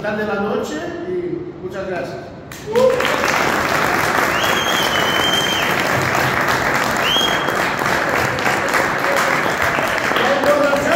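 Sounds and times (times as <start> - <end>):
small group applauding: 2.5 - 10.9.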